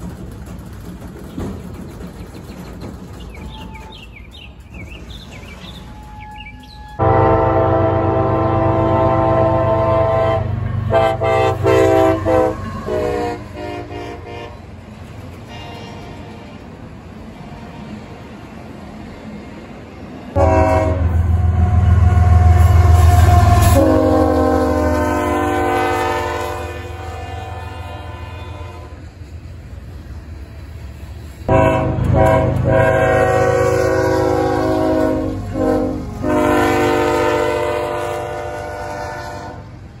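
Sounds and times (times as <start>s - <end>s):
locomotive engine rumble: 0.0s - 40.0s
locomotive air horn: 6.0s - 14.7s, 15.4s - 16.6s, 20.4s - 29.2s, 31.5s - 39.8s.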